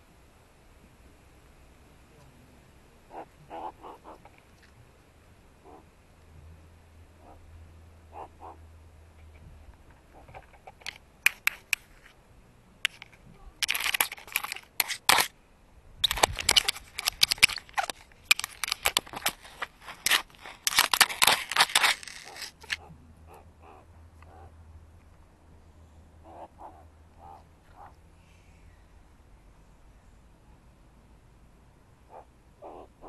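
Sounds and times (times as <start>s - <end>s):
animal scratching against camera: 12.9s - 15.3s, 16.0s - 22.8s.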